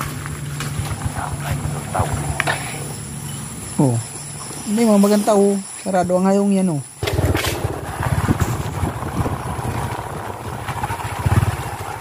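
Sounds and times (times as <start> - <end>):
small motorcycle engine running: 7.0 - 12.0
wind rumbling on microphone: 7.0 - 12.0.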